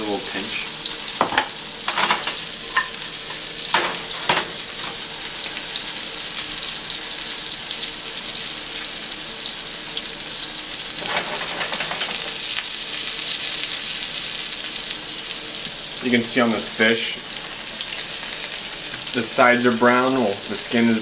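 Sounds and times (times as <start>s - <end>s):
fish sizzling in oil: 0.0s - 21.0s
pan knocking on stove: 1.2s - 3.0s, 3.7s - 5.0s.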